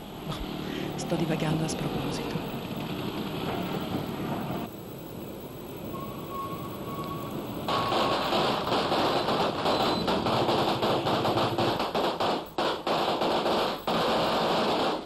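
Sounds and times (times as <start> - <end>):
firecrackers exploding: 7.6 - 15.0.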